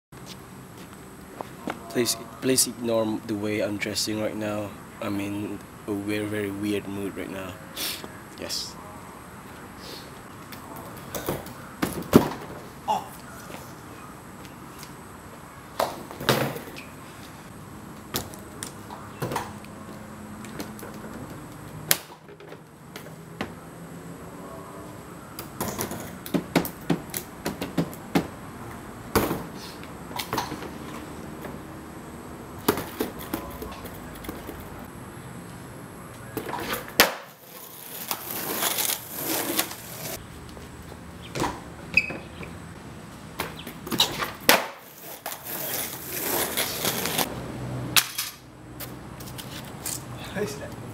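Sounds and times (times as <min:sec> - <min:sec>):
steady hiss: 0:00.2 - 0:08.7
skateboard knocking on concrete: 0:25.5 - 0:28.3, 0:32.6 - 0:34.7, 0:36.4 - 0:41.6, 0:43.4 - 0:47.3.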